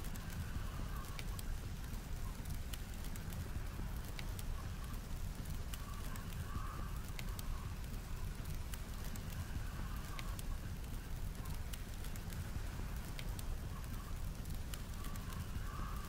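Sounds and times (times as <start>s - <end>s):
blizzard wind rumble: 0.0s - 16.0s
wood fire crackling and popping: 0.0s - 16.0s.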